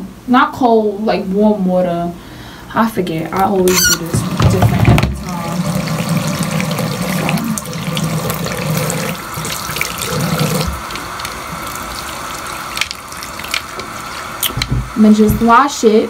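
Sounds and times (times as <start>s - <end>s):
tap water running into sink: 3.4s - 15.6s.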